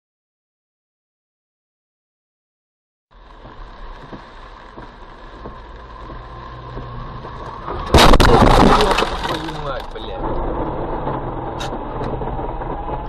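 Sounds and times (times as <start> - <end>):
car road and engine rumble: 3.1 - 13.0.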